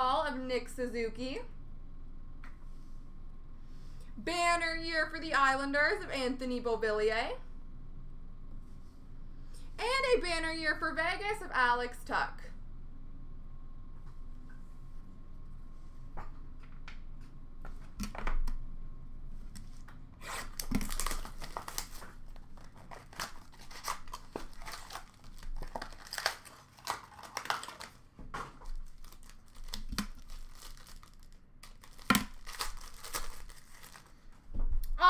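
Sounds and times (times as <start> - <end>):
wrappers ripping and crinkling: 20.2 - 34.3.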